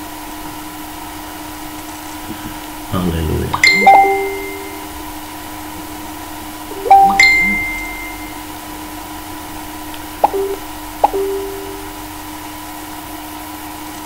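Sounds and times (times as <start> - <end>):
faint steady hum: 1.9 - 5.2, 10.0 - 12.2
electronic chime: 3.6 - 5.0, 6.7 - 8.4, 10.2 - 12.0
brief electronic blips: 10.2 - 12.0.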